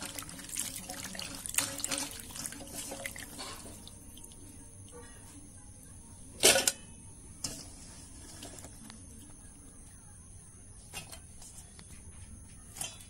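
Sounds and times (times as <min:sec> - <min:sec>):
hands splashing food in water: 0:00.0 - 0:05.0
pieces clattering into steel bowl: 0:06.4 - 0:07.7.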